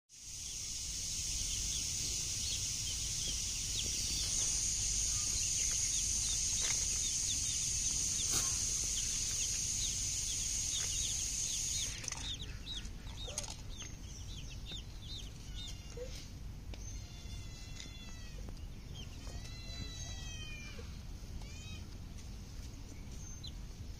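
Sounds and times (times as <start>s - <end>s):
high-pitched whine: 0.2s - 12.4s
baby chicks peeping: 0.4s - 23.9s.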